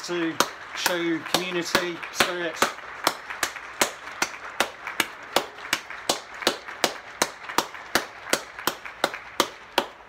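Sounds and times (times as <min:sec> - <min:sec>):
crowd applause: 0:00.0 - 0:10.0
person clapping hands close by: 0:00.0 - 0:10.0.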